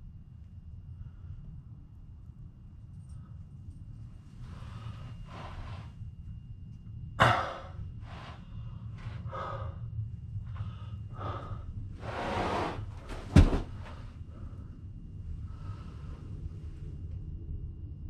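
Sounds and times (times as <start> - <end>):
low steady rumble: 0.0 - 18.0
person breathing closely: 4.4 - 6.0, 7.2 - 16.5.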